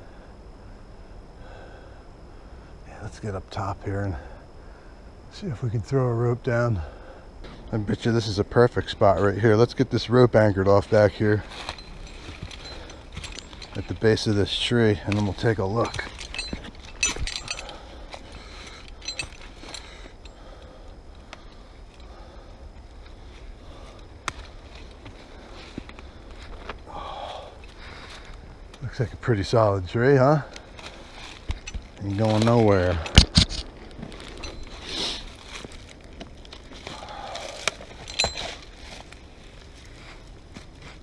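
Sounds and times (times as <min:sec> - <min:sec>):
low steady rumble: 0:00.0 - 0:41.0
footsteps in dry leaves: 0:33.6 - 0:41.0.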